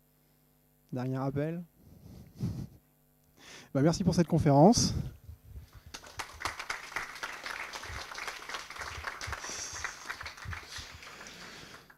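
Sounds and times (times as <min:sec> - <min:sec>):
audience applauding: 0:05.9 - 0:11.9.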